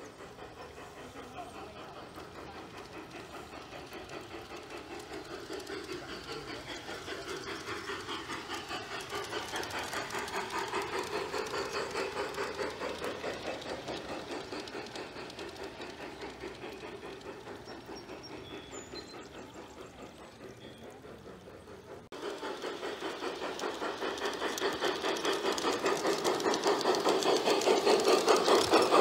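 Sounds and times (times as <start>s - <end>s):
model steam locomotive chuffing: 0.0s - 29.0s.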